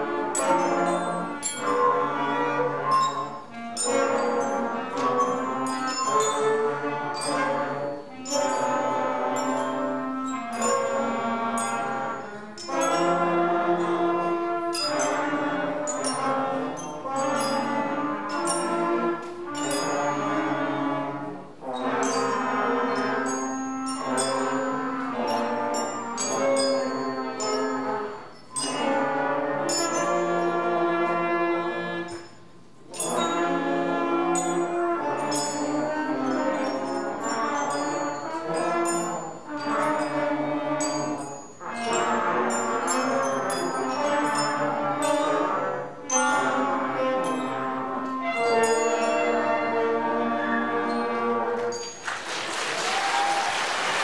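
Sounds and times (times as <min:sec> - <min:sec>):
school band playing simple tune: 0:00.0 - 0:54.0.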